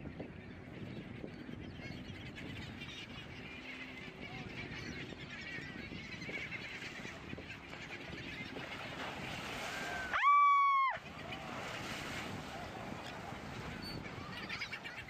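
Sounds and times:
seabirds calling: 0.0s - 15.0s
wind: 0.0s - 15.0s
water washing: 8.5s - 14.5s.

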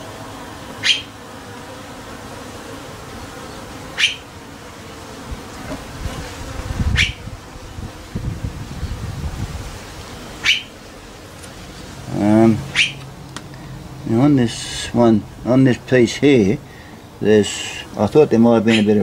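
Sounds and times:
bees buzzing: 0.0s - 19.0s.

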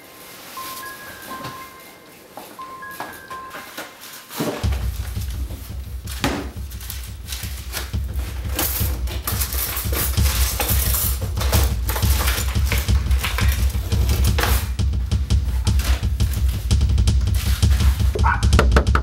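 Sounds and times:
metal cutlery rattling in drawer: 8.4s - 14.6s.

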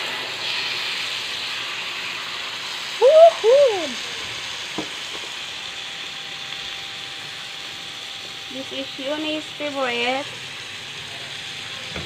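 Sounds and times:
chicken sizzling on grill pan: 0.0s - 12.0s
voice-like calls: 3.0s - 4.0s.

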